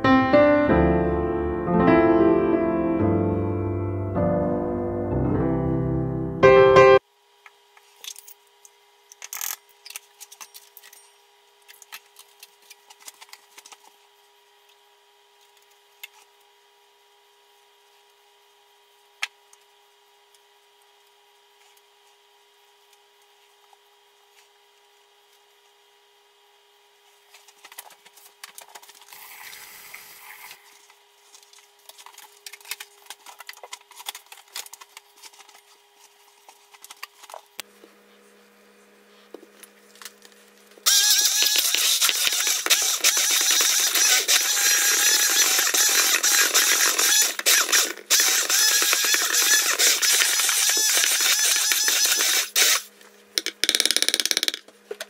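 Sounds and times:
electric hand mixer running: 0:40.9 - 0:52.9.

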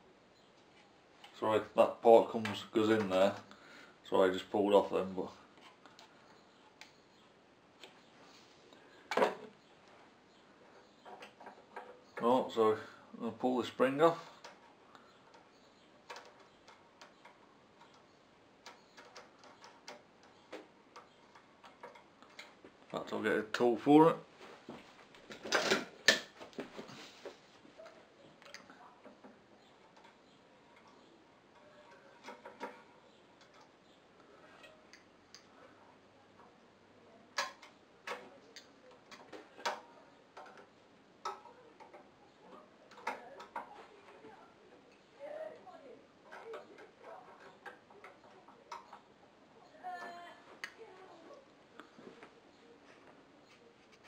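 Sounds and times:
small metallic clicks: 0:14.3 - 0:22.6.

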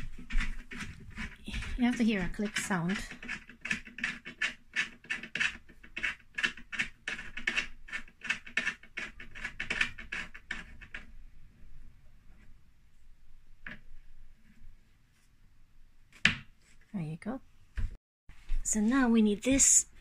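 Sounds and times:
scratchy rubbing strokes: 0:00.0 - 0:06.2.

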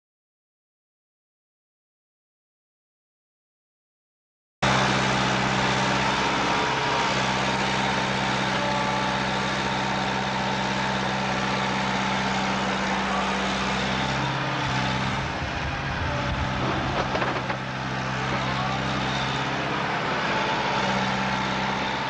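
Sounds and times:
heavy diesel engine running: 0:04.6 - 0:22.0.

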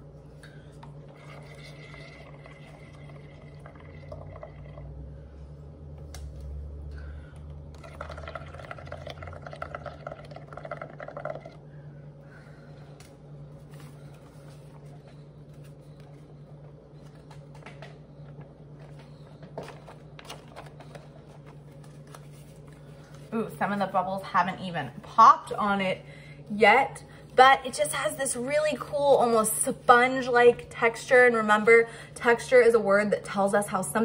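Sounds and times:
bubbling through a straw in water: 0:01.1 - 0:05.1, 0:07.7 - 0:11.6.

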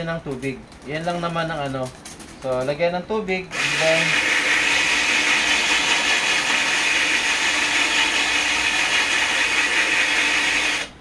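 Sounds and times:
drill hole saw grinding glass: 0:03.5 - 0:10.9.

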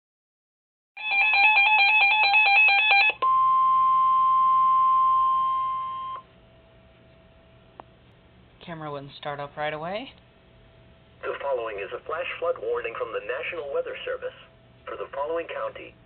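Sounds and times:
warbling electronic alarm: 0:01.0 - 0:06.3.

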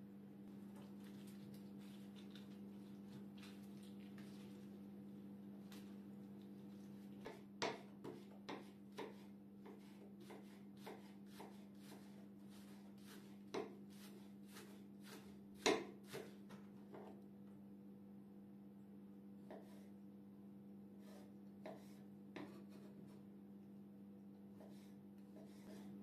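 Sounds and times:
knife chopping on wooden board: 0:07.2 - 0:17.0, 0:21.1 - 0:22.8.

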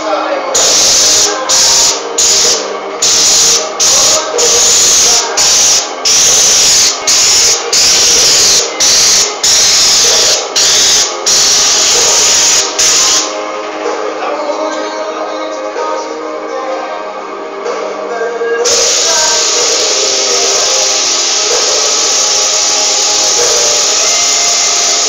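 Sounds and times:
paint sprayer hissing: 0:00.6 - 0:13.4, 0:18.7 - 0:25.0.

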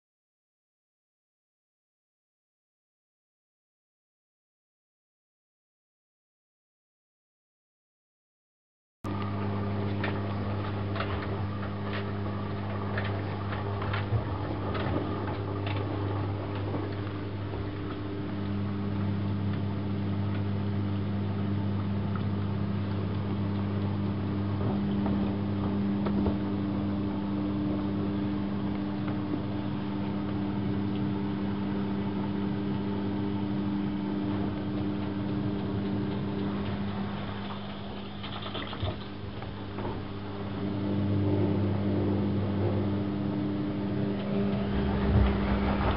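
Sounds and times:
washing machine electrical hum: 0:09.0 - 0:45.9
water running into drum: 0:09.1 - 0:20.4, 0:34.2 - 0:40.3
light ticks and splashes: 0:09.2 - 0:24.2, 0:33.9 - 0:39.6.

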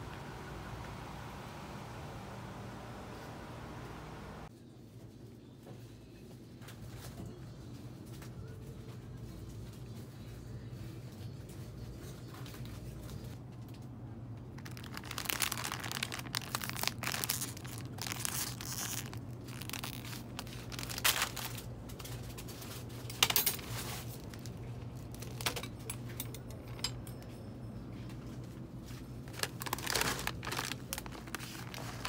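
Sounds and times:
steady low hum: 0:00.0 - 0:04.5
plastic snack packets crinkling: 0:14.4 - 0:25.6, 0:28.9 - 0:32.0.

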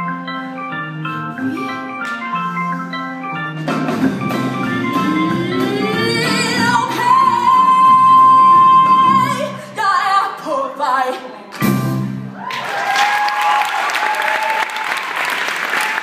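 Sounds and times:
band playing: 0:00.0 - 0:09.8, 0:11.6 - 0:12.4
woman singing: 0:04.9 - 0:11.5
audience applause: 0:12.4 - 0:16.0.

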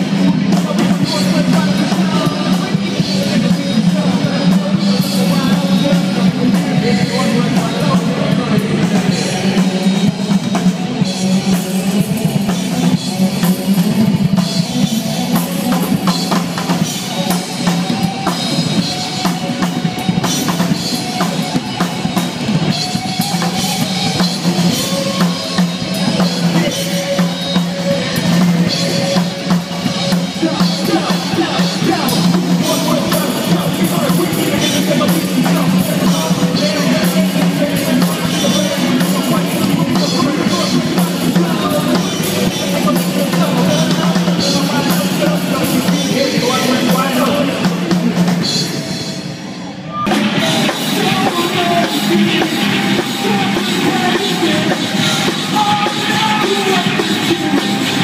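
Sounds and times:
rock band playing live: 0:00.0 - 0:58.0.

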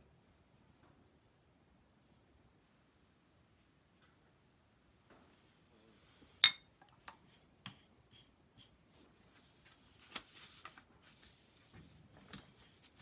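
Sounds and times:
ceramic dish clinking on table: 0:06.4 - 0:06.7.

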